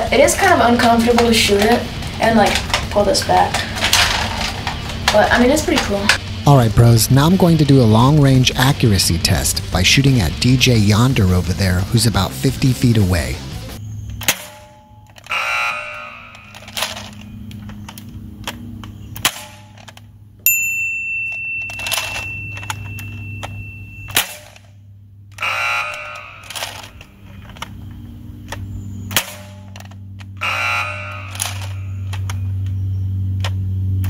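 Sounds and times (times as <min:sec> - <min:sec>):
steady low hum: 0:00.0 - 0:34.0
toy dart gun clicks and snaps: 0:31.2 - 0:32.4.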